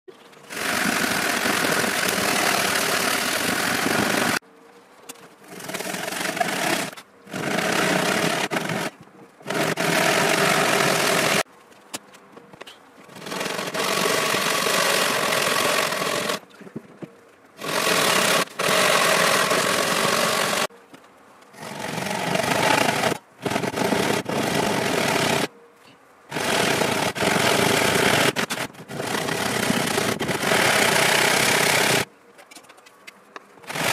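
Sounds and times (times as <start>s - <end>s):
hand saw rasping through wood: 0.5s - 4.4s, 5.6s - 11.4s, 13.2s - 16.4s, 17.6s - 20.7s, 21.6s - 25.5s, 26.3s - 32.0s.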